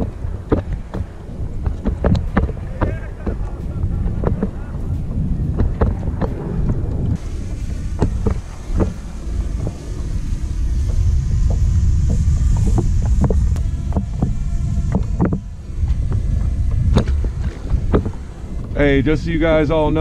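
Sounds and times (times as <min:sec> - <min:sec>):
sharp knocks and taps: 0:00.0 - 0:03.4
wind buffeting microphone: 0:00.0 - 0:20.0.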